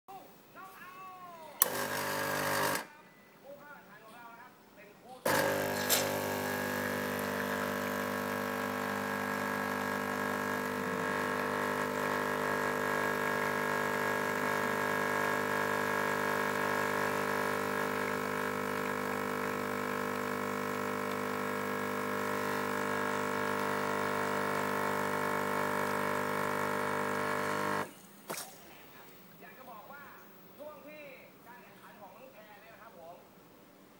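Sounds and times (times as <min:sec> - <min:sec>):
espresso machine pump humming: 0:01.6 - 0:02.8, 0:05.3 - 0:27.9.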